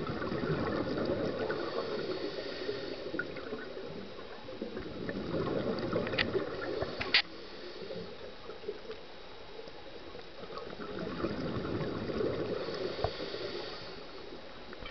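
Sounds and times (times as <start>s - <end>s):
underwater bubbles gurgling: 0.0s - 14.9s
diver breathing underwater: 0.2s - 3.8s, 5.1s - 8.4s, 11.6s - 14.4s.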